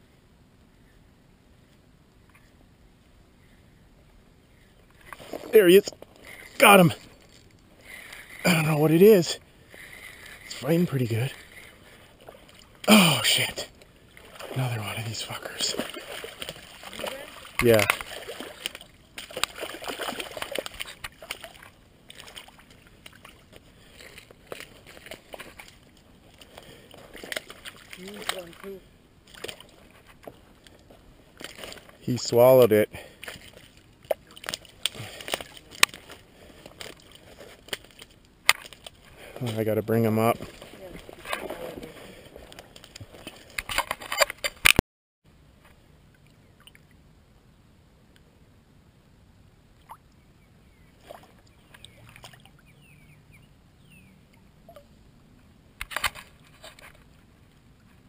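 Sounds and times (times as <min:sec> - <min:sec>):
rustling and scraping handling noise: 0:04.9 - 0:08.4, 0:29.3 - 0:32.1, 0:33.2 - 0:44.8, 0:55.8 - 0:58.0
fish splashing in water: 0:14.1 - 0:29.8, 0:51.0 - 0:52.7.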